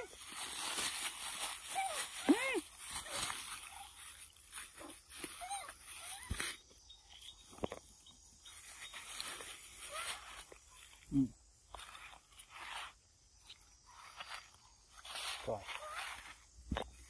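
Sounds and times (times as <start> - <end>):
faint outdoor hiss: 0.0 - 17.0
rustling: 0.0 - 17.0
monkey squeaking: 1.4 - 4.3, 5.1 - 6.6, 8.6 - 10.5, 15.6 - 16.4.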